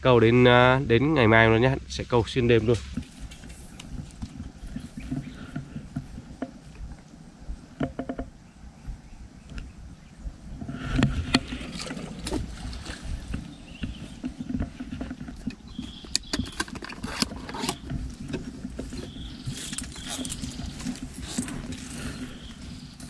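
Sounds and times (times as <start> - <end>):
handling rustling and clicks: 11.0 - 23.0.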